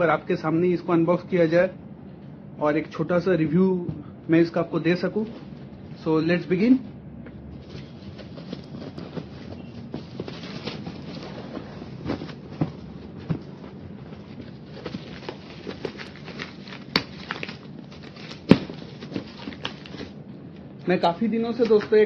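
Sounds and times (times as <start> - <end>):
plastic wrapping crinkling: 7.6 - 20.2.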